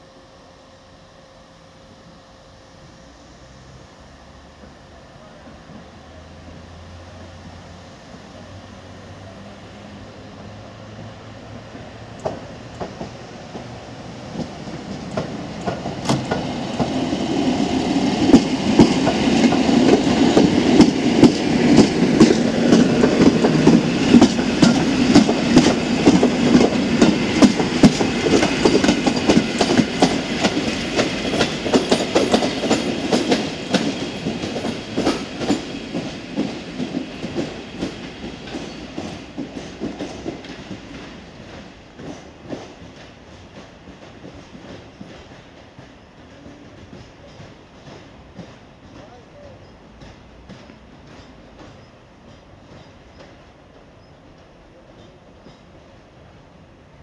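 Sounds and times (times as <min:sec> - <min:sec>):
train rumble: 0:00.0 - 0:57.0
train wheels clattering over rail joints: 0:11.7 - 0:56.0.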